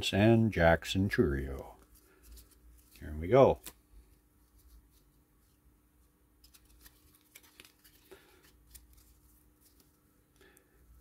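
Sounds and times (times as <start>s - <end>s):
trading cards rustling: 1.5s - 5.6s, 6.4s - 10.5s.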